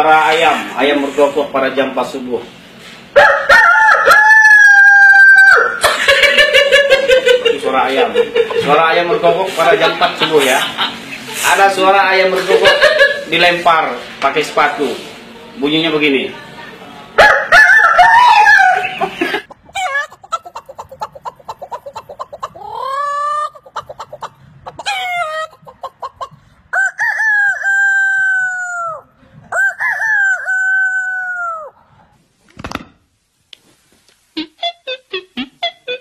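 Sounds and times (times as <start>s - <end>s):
person imitating rooster crows: 3.2s - 5.8s, 17.2s - 18.8s, 26.8s - 31.8s
person imitating chickens: 18.0s - 31.8s, 34.4s - 36.0s.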